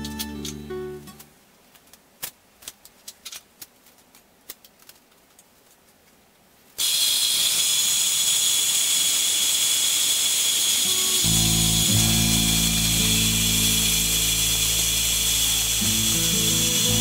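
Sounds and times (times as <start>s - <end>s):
loud steady high hiss: 6.4s - 17.0s.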